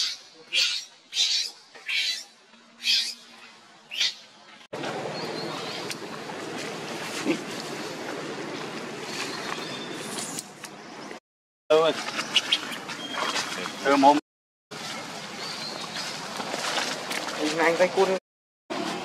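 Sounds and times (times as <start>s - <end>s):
baby monkey screaming: 0.0s - 3.2s.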